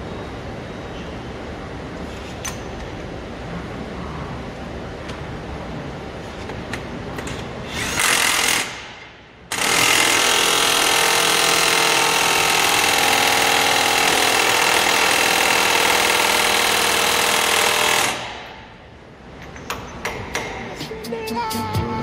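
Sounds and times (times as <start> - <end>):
impact wrench hammering: 7.2 - 18.8, 19.4 - 20.8.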